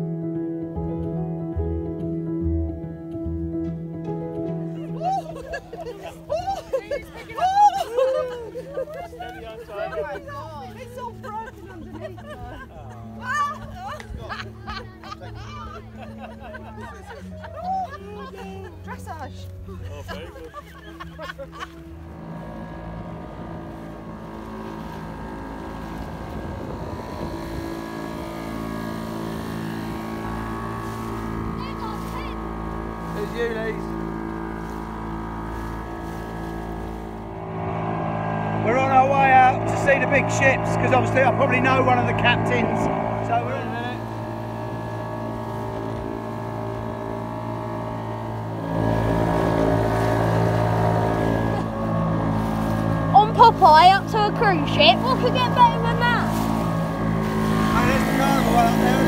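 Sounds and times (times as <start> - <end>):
motorboat engine running: 0.0 - 59.0
water noise: 4.7 - 59.0
wind noise: 22.4 - 33.1.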